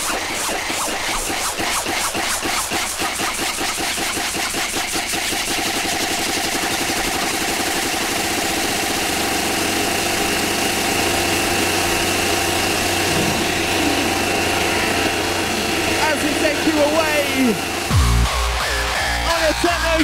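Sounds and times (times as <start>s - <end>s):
buzzing synth drone: 0.0s - 20.0s.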